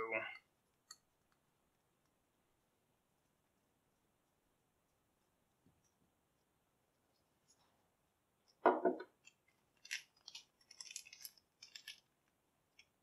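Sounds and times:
dull knock of object set down: 0:08.6 - 0:09.1.

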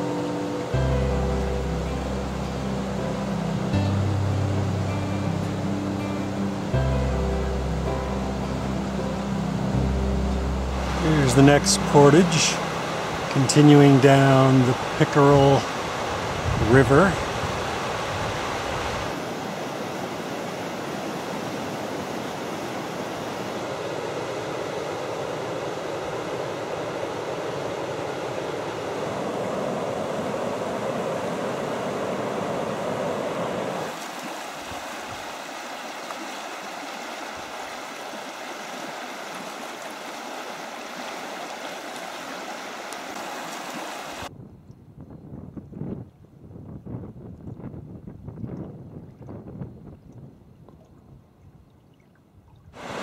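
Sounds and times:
river rapids rushing: 0:07.5 - 0:44.3, 0:52.8 - 0:53.0.

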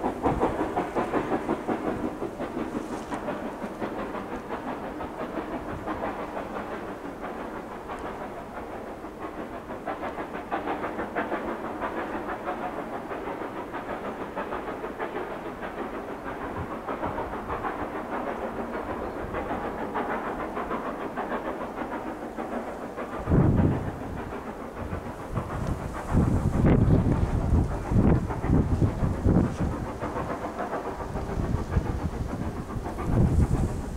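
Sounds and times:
wind hitting microphone: 0:00.0 - 0:06.9, 0:22.8 - 0:33.9
distant steam locomotive exhaust beats: 0:00.0 - 0:33.9.

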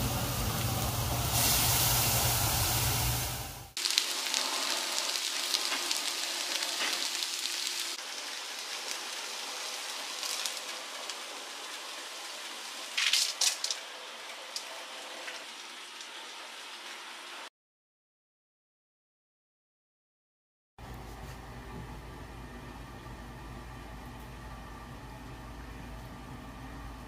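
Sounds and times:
broth simmering in a saucepan: 0:00.0 - 0:17.5.

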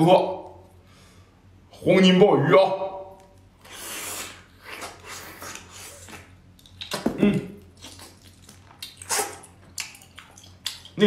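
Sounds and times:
wet chewing and smacking: 0:04.6 - 0:11.0.

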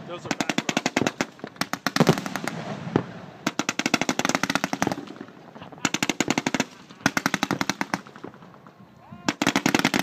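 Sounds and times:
fireworks crackling: 0:00.0 - 0:10.0
fireworks rapid bangs: 0:00.2 - 0:08.5, 0:09.3 - 0:10.0.

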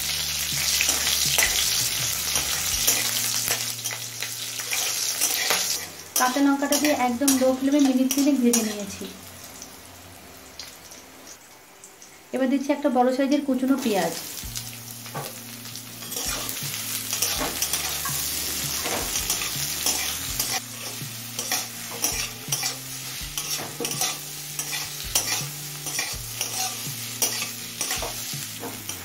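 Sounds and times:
onion sizzling in hot oil: 0:00.0 - 0:29.0
metal spatula scraping a pan: 0:00.7 - 0:09.0, 0:16.0 - 0:29.0.

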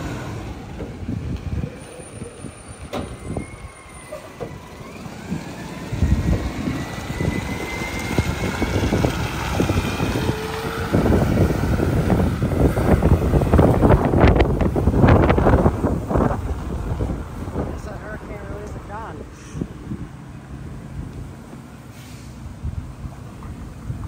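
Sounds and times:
garbage truck engine accelerating: 0:00.0 - 0:17.8
wind buffeting microphone: 0:00.0 - 0:24.0.

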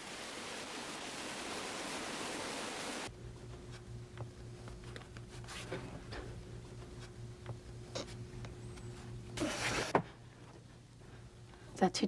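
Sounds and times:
waterfall rushing: 0:00.0 - 0:03.1
low hum: 0:03.1 - 0:11.9.

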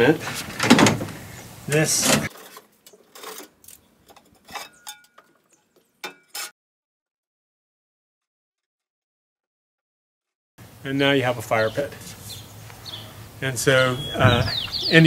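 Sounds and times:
metal parts clinking and scraping: 0:01.8 - 0:06.5.

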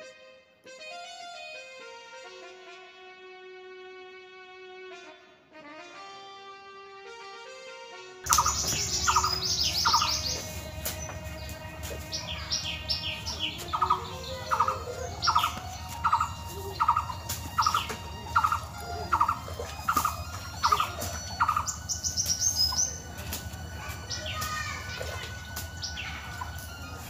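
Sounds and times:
bird repeating short call: 0:08.3 - 0:10.4
higher bird chirps: 0:08.3 - 0:23.2, 0:23.8 - 0:27.0.

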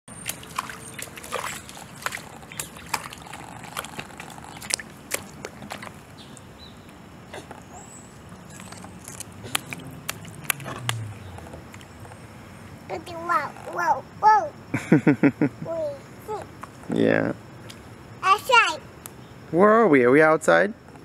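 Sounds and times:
rubber boots splashing in puddle: 0:00.1 - 0:06.1, 0:08.4 - 0:12.0
water sloshing: 0:00.1 - 0:12.6.

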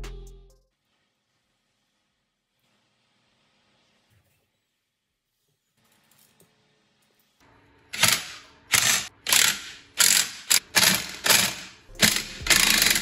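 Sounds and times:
ratchet wrench clicking: 0:08.0 - 0:13.0.

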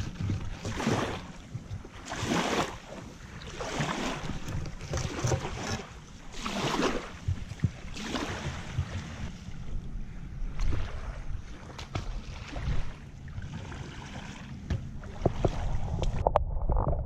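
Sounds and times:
wind on microphone: 0:00.0 - 0:02.8, 0:03.5 - 0:13.8, 0:14.6 - 0:17.0
small waves washing on sand: 0:00.0 - 0:09.5.

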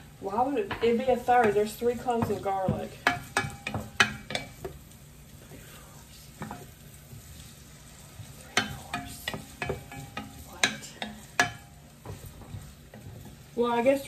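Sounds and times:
low frying sizzle: 0:00.0 - 0:14.0
wooden spoon stirring in pot: 0:00.0 - 0:14.0
spoon tapping against pot: 0:00.7 - 0:04.8, 0:08.5 - 0:13.4.

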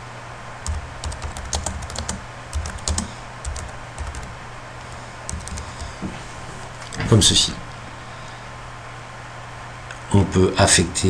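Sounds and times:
typing on computer keyboard: 0:00.6 - 0:04.3, 0:05.3 - 0:05.9.

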